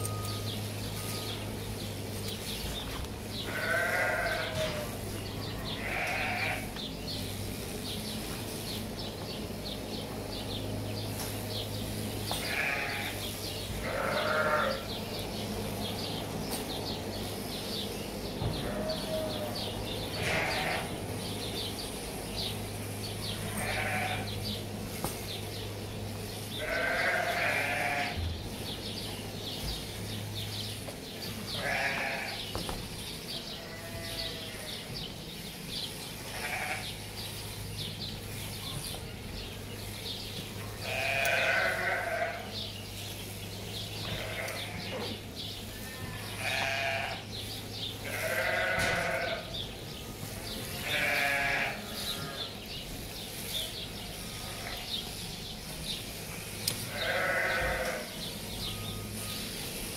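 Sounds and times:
sheep bleating: 3.4s - 6.9s, 12.3s - 15.0s, 18.5s - 21.0s, 23.3s - 24.4s, 26.5s - 28.2s, 31.5s - 32.5s, 33.5s - 34.9s, 36.2s - 37.0s, 40.8s - 42.7s, 44.0s - 45.0s, 45.7s - 47.3s, 48.0s - 49.6s, 50.7s - 52.6s, 56.9s - 58.2s.

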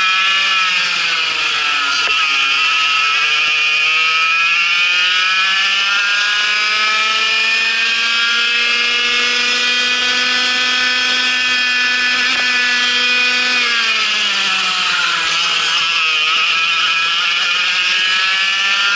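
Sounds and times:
kart engine at full throttle: 0.0s - 18.9s.

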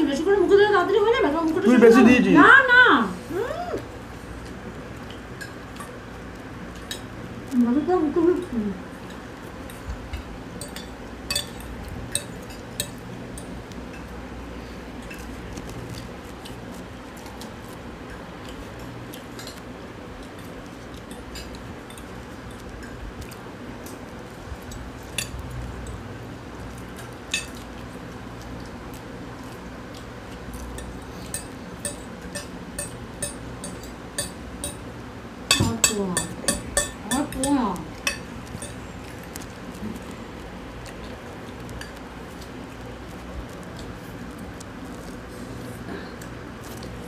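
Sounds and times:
low room hum: 0.0s - 47.0s
cutlery clinking on plates: 10.1s - 14.1s, 30.8s - 34.9s.

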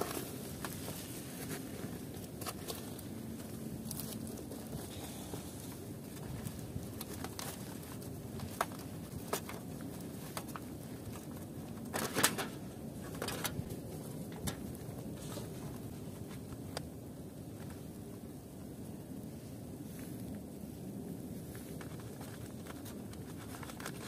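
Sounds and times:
thin foil crinkling: 21.8s - 24.0s.

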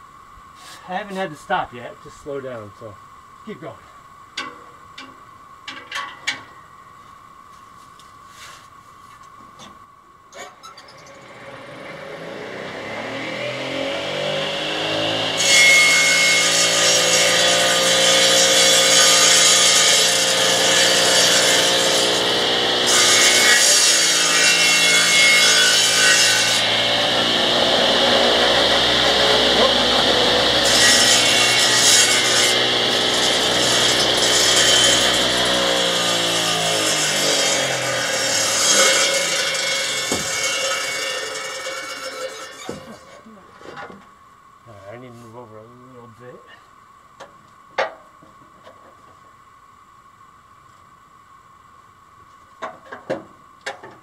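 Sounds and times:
sawmill electric drive: 10.3s - 43.2s
saw blade cutting log: 12.8s - 43.1s.

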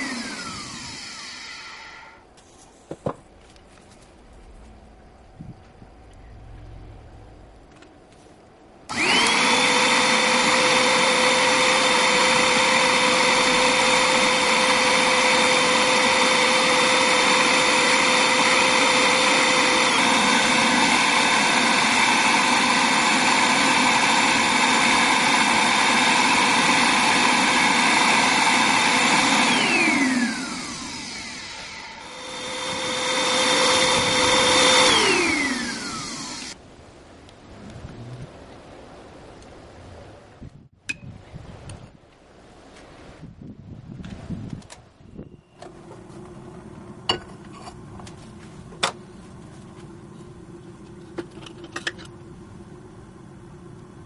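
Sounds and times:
electric motor whining: 0.0s - 2.2s, 8.9s - 36.6s.

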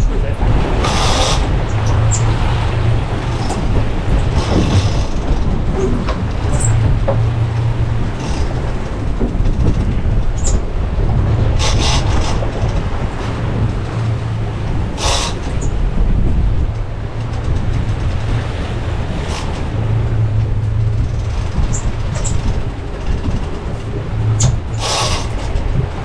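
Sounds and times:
boat engine rumble: 0.0s - 26.0s
water noise: 0.0s - 26.0s
wind: 0.0s - 26.0s.

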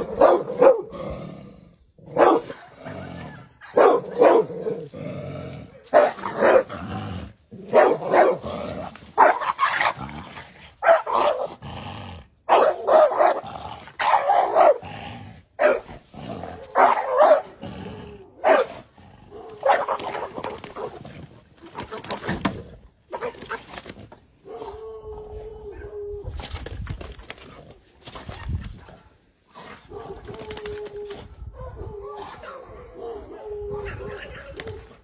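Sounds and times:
dog barking: 0.0s - 0.9s, 2.1s - 4.8s, 5.8s - 6.7s, 7.7s - 8.4s, 9.2s - 9.8s, 10.8s - 11.5s, 12.5s - 13.4s, 14.0s - 14.8s, 15.6s - 15.9s, 16.7s - 17.6s, 18.4s - 20.2s, 29.8s - 30.3s, 31.6s - 34.5s.

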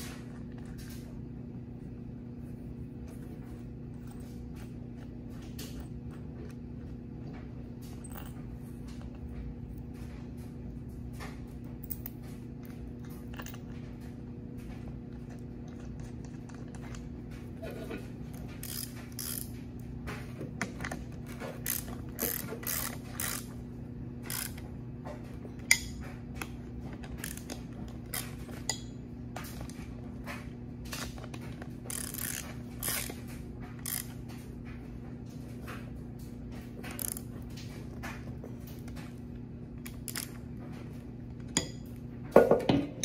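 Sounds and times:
steady low hum: 0.0s - 43.0s
ratchet wrench clicking: 18.6s - 19.5s, 21.6s - 23.4s, 24.3s - 24.6s, 31.9s - 33.1s, 33.8s - 34.1s.

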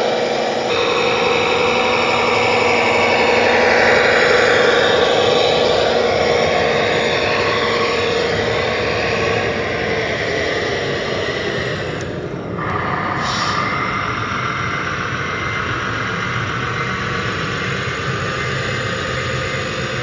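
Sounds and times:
model dump truck running: 0.0s - 12.9s.

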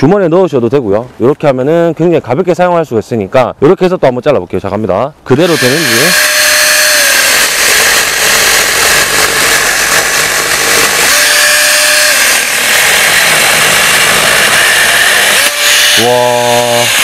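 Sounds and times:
electric chainsaw cutting branch: 5.4s - 17.0s.

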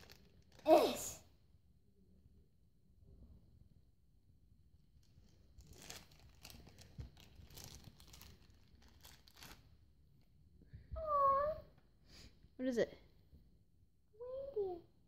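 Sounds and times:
plastic wrapper crinkling and tearing: 0.0s - 1.0s, 5.0s - 9.8s.

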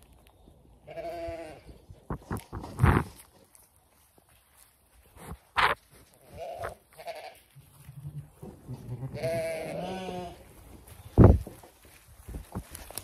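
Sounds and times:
sheep bleating: 0.9s - 1.7s, 6.3s - 7.5s, 8.7s - 10.5s.

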